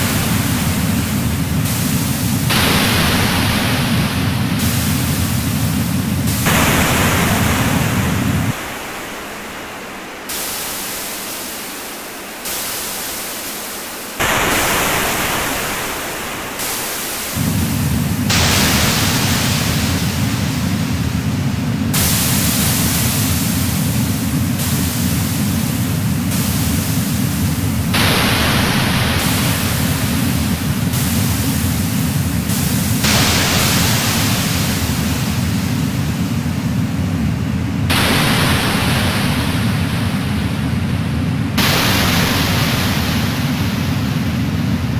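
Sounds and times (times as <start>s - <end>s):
electronic noise music: 0.0s - 44.9s.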